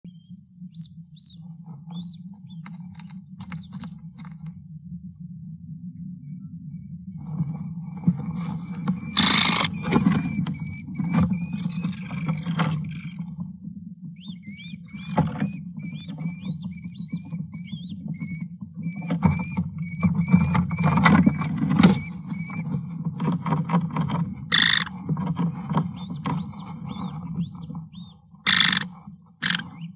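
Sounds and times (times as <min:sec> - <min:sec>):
steady low hum: 0:00.0 - 0:29.9
kestrels chirping: 0:00.1 - 0:03.9, 0:07.8 - 0:13.2, 0:14.2 - 0:22.7, 0:24.5 - 0:24.9, 0:25.9 - 0:29.9
wings fluttering: 0:00.2 - 0:04.6, 0:07.2 - 0:13.5, 0:14.1 - 0:29.9
birds scratching and rustling: 0:07.2 - 0:13.4, 0:14.2 - 0:29.9.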